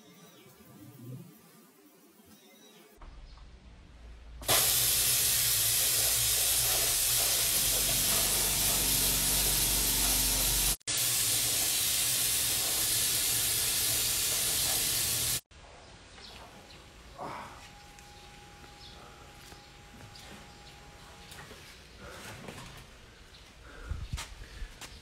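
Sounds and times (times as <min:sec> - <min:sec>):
air blowing with loud hiss: 0:04.4 - 0:15.4
low hum: 0:05.9 - 0:10.8, 0:15.7 - 0:22.1.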